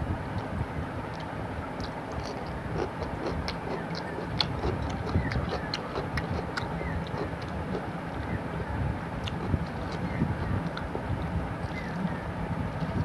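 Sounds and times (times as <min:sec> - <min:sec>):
steady low rumble: 0:00.0 - 0:13.0
chewing and lip smacking: 0:01.1 - 0:08.5, 0:09.2 - 0:12.1.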